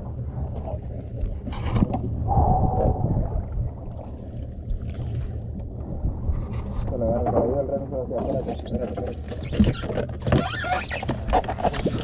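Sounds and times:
steady low rumble: 0.0 - 8.2
water splashing: 0.3 - 6.8.

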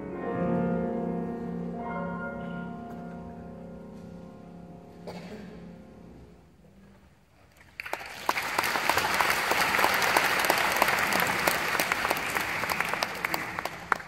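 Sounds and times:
audience applauding: 7.6 - 14.0.

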